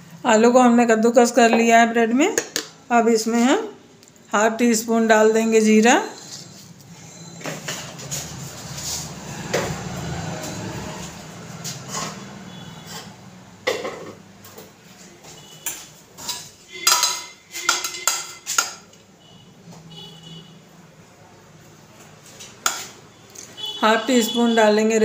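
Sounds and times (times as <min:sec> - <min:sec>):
utensils and dishes clinking: 0:06.1 - 0:14.7, 0:15.6 - 0:19.0.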